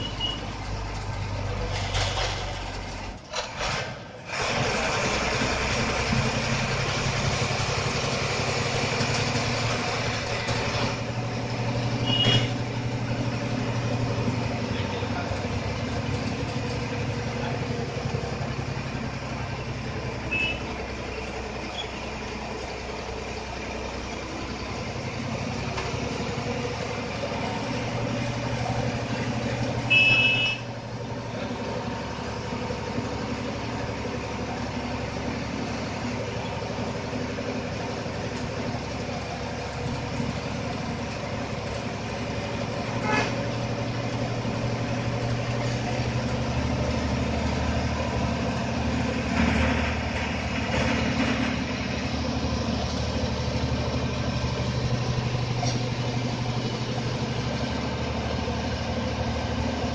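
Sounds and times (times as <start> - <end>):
bus horn blast: 0.0 - 0.5, 12.0 - 12.6, 20.3 - 20.8, 29.8 - 30.7, 42.9 - 43.6
bus diesel engine running: 0.0 - 59.9.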